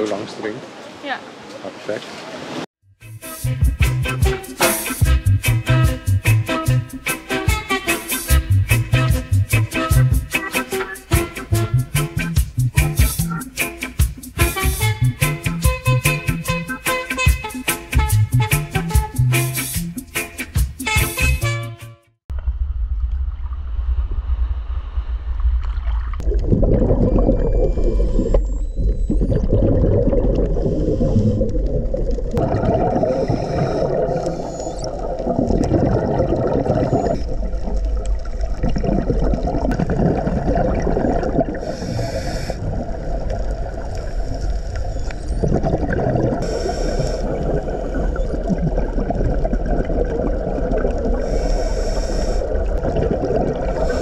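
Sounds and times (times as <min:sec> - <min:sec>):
muffled underwater rumble: 0:22.3 - 0:54.0
regulator bubbles gurgling: 0:26.0 - 0:54.0
brief hiss: 0:46.4 - 0:47.3.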